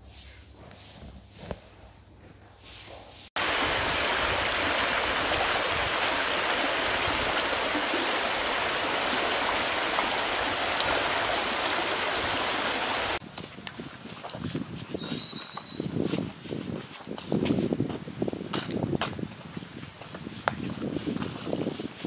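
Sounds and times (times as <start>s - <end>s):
stream rushing over stones: 3.4s - 13.2s.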